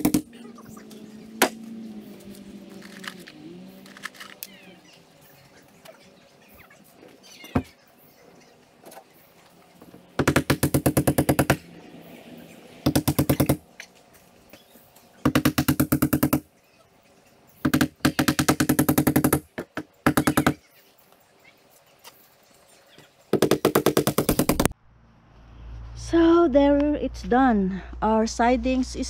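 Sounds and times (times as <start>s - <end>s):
impact driver hammering: 0.0s - 0.3s.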